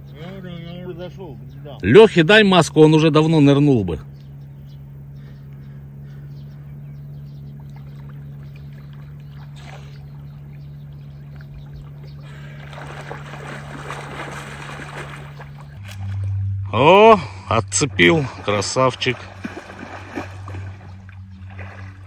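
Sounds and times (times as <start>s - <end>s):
steady low hum: 0.0s - 22.0s
river water splashing: 4.9s - 22.0s.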